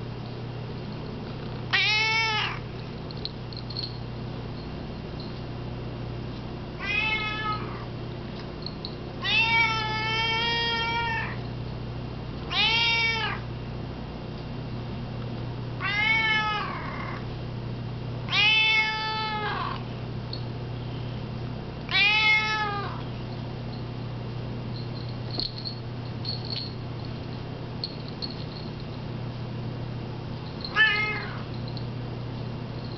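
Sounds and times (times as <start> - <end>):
cat meowing: 1.7 - 2.6, 6.8 - 7.9, 9.2 - 11.4, 12.5 - 13.4, 15.8 - 17.2, 18.3 - 19.8, 21.9 - 23.0, 30.7 - 31.5.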